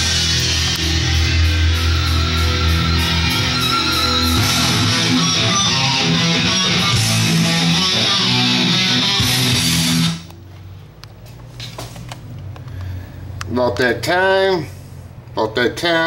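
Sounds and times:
guitar rock music: 0.0 - 10.3.

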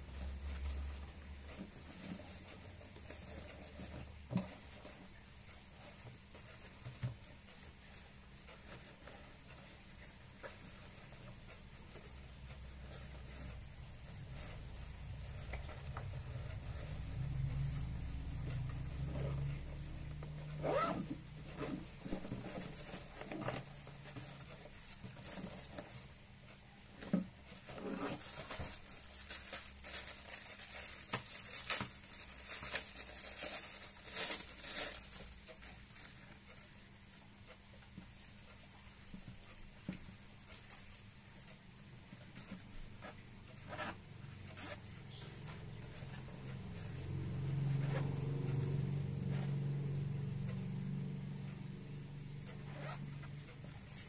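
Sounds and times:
fabric rustling: 0.0 - 51.0, 51.8 - 54.0
low steady hum: 0.0 - 54.0
nylon bag rustling: 10.5 - 25.9, 27.6 - 36.2.

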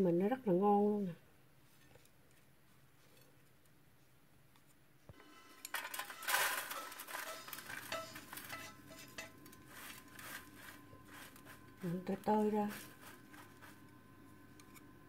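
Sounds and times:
chopsticks scraping on metal: 5.3 - 14.9
crisp rustling of shreds: 5.7 - 13.9.

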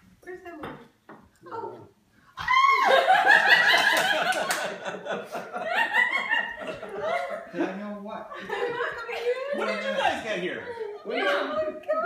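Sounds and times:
woman screaming: 2.4 - 3.1.

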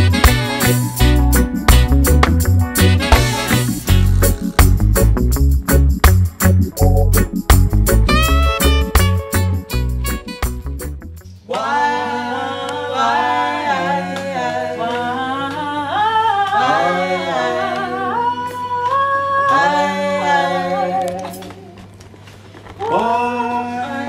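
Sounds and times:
reggae music with heavy bass: 0.0 - 11.2
voices singing a cappella: 11.4 - 21.8, 22.8 - 24.0.

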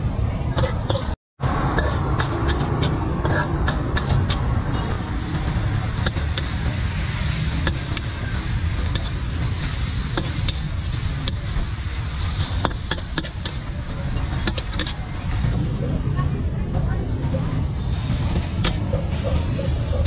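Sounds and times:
gas burner rumble: 0.6 - 20.0
sizzling hiss: 1.8 - 15.6.

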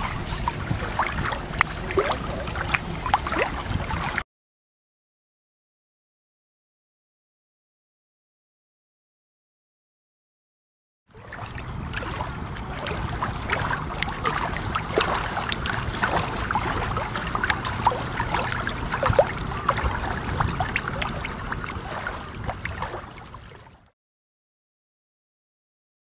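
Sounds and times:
water splashing around a boat: 0.0 - 4.2, 11.1 - 23.9
low rumble: 11.2 - 23.4.

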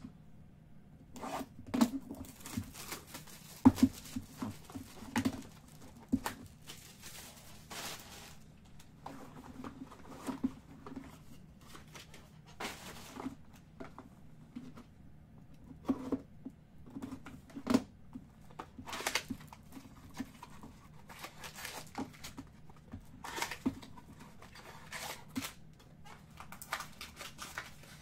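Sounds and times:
plastic wrap tearing: 1.8 - 8.4, 21.0 - 22.4, 26.3 - 28.0.

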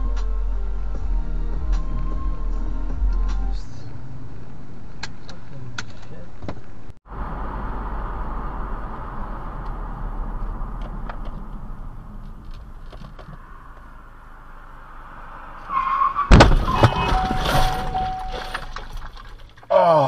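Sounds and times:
car road and engine noise: 0.0 - 20.0
car collision crash: 15.7 - 19.7
rattling: 16.2 - 19.7.

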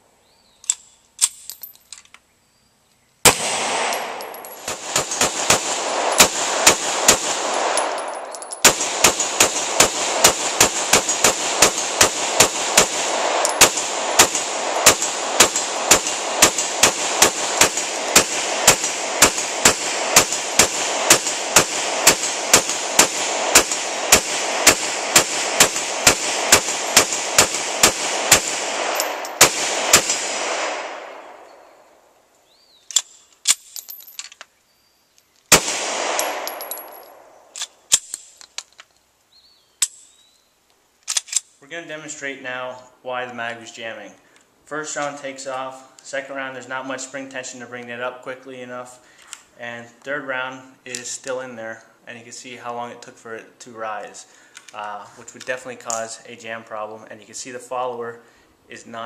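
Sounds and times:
pistol gunshots with echo: 3.3 - 31.8, 35.5 - 37.5.

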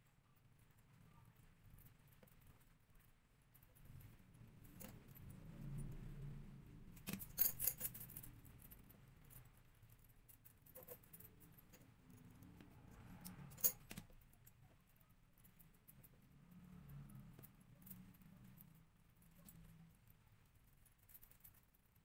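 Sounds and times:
chainmail rings clinking: 7.1 - 8.3.

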